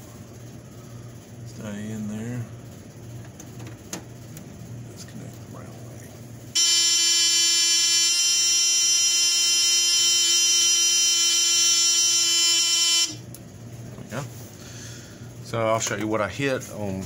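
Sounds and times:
alarm panel buzzer: 6.6s - 13.3s.

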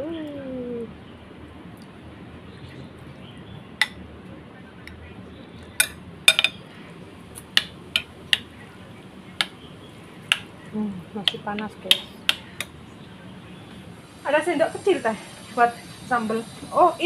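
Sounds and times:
metal spoon clinking on bowl: 5.8s - 6.6s.

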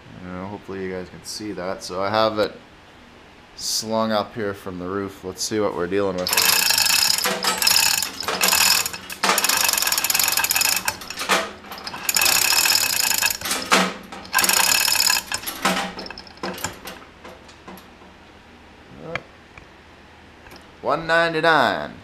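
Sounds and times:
hoist chain ratcheting clatter: 6.2s - 17.0s.

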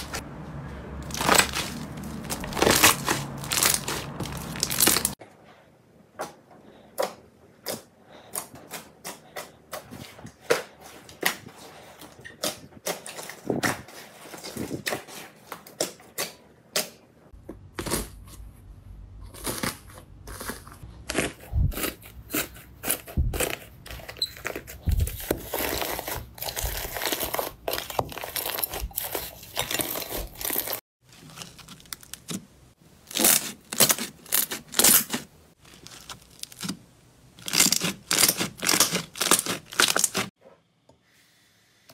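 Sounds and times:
slime squishing: 1.0s - 5.2s, 7.0s - 16.9s, 19.2s - 40.3s
crusted slime crackling: 1.1s - 5.2s, 33.0s - 40.3s.

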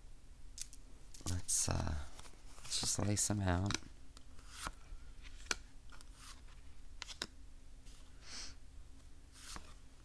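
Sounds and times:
cards clicking and tapping: 2.7s - 6.3s, 7.0s - 7.4s
card sliding on mat: 9.3s - 9.8s.

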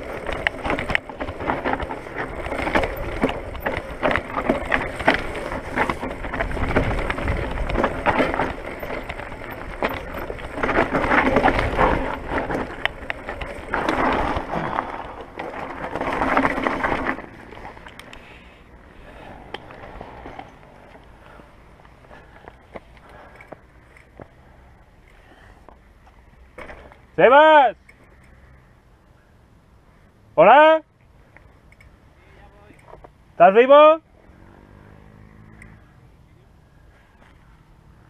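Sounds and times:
bike tyres crunching over stones: 0.0s - 28.3s
bike rattling over bumps: 0.0s - 29.0s.

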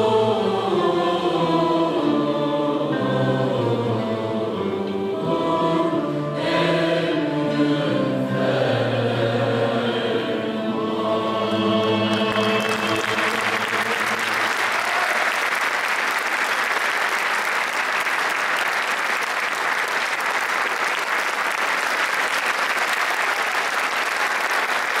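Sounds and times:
choir and ensemble held chord: 0.0s - 16.4s
audience applauding: 12.0s - 25.0s.

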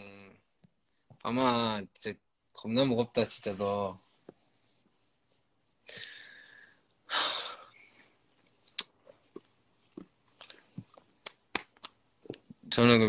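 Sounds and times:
small mouth clicks: 8.7s - 12.5s.

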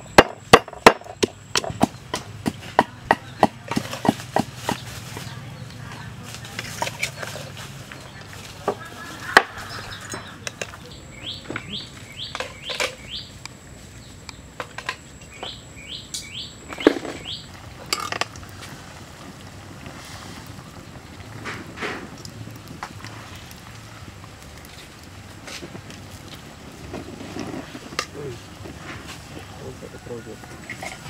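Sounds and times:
bird calling: 1.2s - 18.3s
metal utensils clinking on wok: 17.8s - 18.3s, 30.6s - 31.0s.

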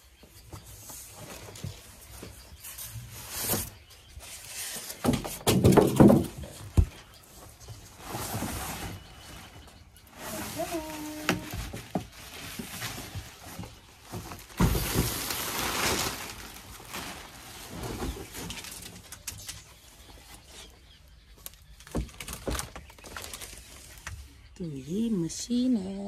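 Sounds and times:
plastic cover crinkling: 10.1s - 19.6s, 21.4s - 24.3s.

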